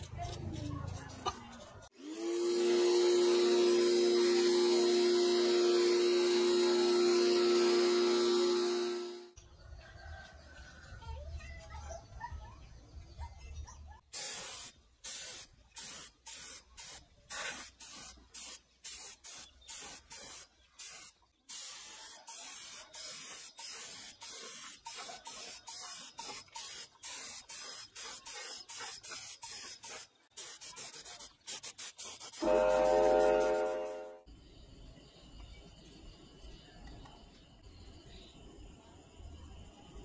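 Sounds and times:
hissing spray bursts from nozzle: 0:02.3 - 0:09.2, 0:14.1 - 0:34.2.

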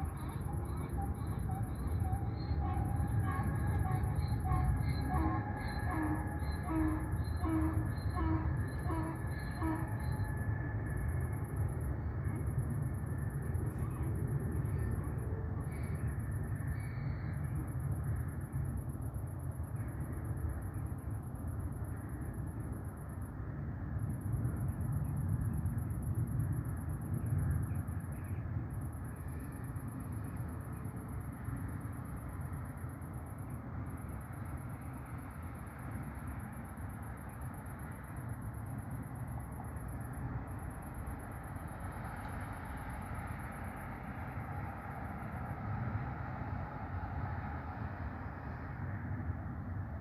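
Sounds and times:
high insect trill: 0:00.0 - 0:48.8
distant traffic rumble: 0:23.7 - 0:50.0.

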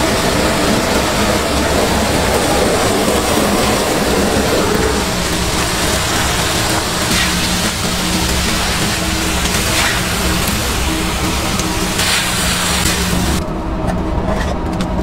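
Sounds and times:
gas torch roaring: 0:00.0 - 0:13.5.

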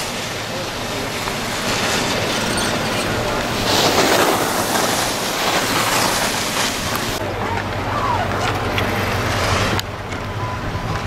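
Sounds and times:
skis scraping over hard snow: 0:00.0 - 0:07.2.

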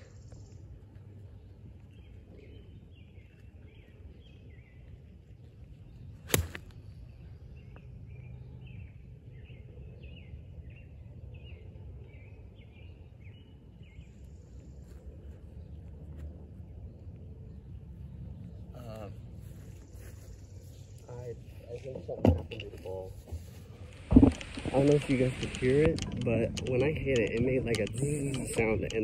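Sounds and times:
golf iron striking ball: 0:06.2 - 0:06.8.

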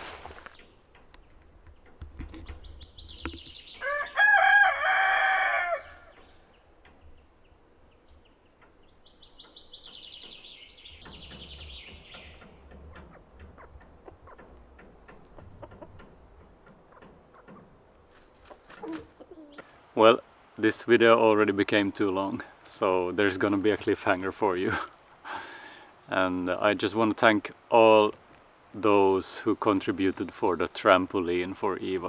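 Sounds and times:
rooster crowing: 0:03.8 - 0:06.2.

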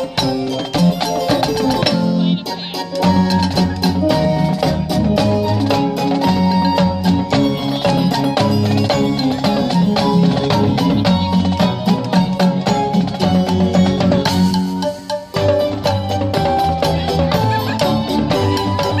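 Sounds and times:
marching drumline: 0:00.0 - 0:19.0
musical backing track: 0:00.0 - 0:19.0.

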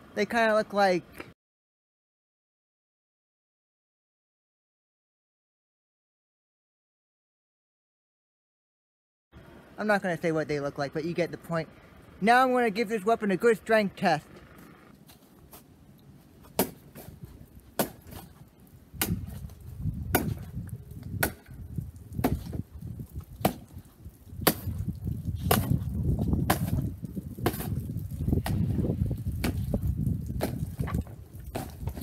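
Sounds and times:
low rumbling: 0:09.4 - 0:32.0
knife striking wooden dummy: 0:16.4 - 0:21.6, 0:22.2 - 0:22.6, 0:23.4 - 0:23.8, 0:24.4 - 0:27.8, 0:29.4 - 0:29.7, 0:30.4 - 0:32.0.

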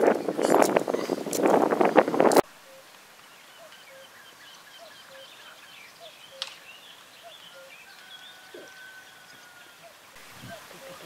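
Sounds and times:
cuckoo calling: 0:00.0 - 0:11.0
small birds chirping and trilling: 0:00.0 - 0:11.0
bird long thin whistle: 0:02.6 - 0:02.9, 0:03.6 - 0:11.0
sharp click: 0:06.4 - 0:06.6.

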